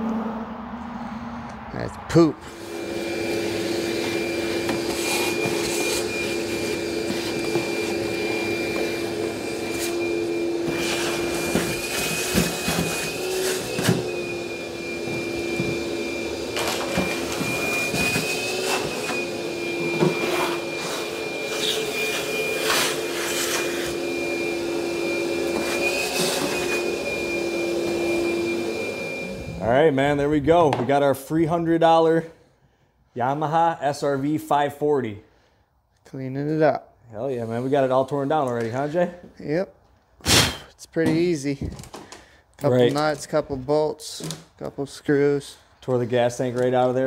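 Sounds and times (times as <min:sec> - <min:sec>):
shop vacuum whining: 0:02.4 - 0:32.2.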